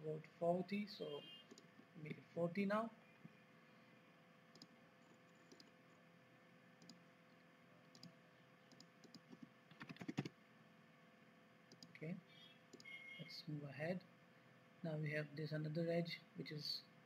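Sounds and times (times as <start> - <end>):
computer mouse clicks: 1.5 - 2.2, 4.5 - 5.8, 6.8 - 7.0, 7.9 - 8.1, 8.7 - 10.3, 11.7 - 12.0.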